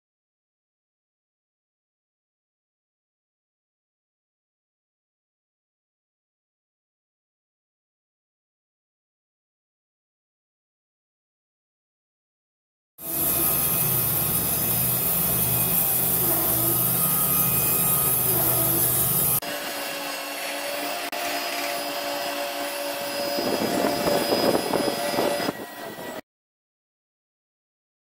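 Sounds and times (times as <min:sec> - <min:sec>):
low engine drone: 0:13.0 - 0:19.4
band sawmill cutting log: 0:13.0 - 0:26.2.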